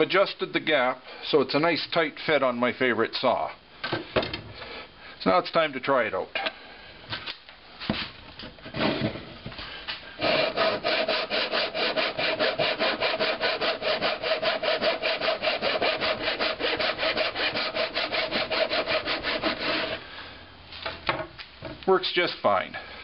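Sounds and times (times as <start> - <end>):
saw cutting wood: 10.2 - 20.0.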